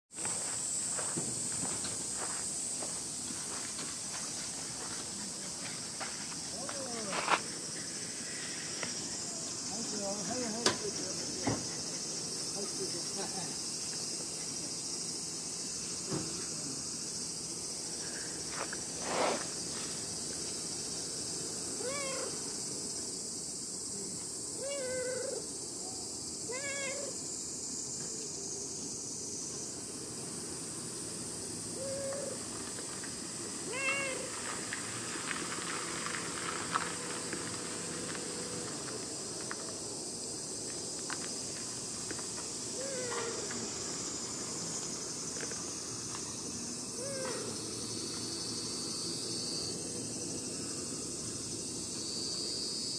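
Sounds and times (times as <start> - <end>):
high insect drone: 0.1 - 52.9
brief thump: 16.1 - 16.4
cat meowing: 21.8 - 22.4, 24.6 - 25.4, 26.5 - 27.2, 33.7 - 34.3.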